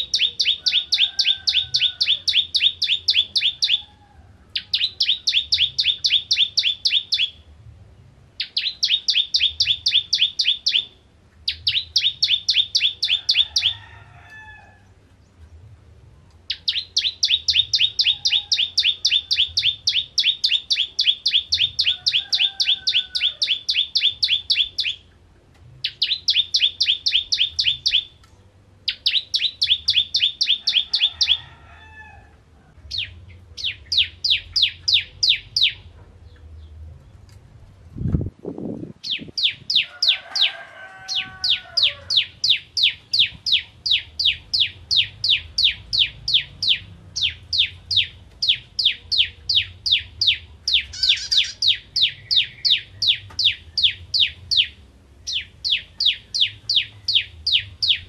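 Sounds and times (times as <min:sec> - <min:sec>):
bird singing rapid sharp notes: 0:04.6 - 0:07.5, 0:08.4 - 0:13.8, 0:16.5 - 0:25.2, 0:25.8 - 0:28.2, 0:28.8 - 0:31.4, 0:41.8 - 0:58.0.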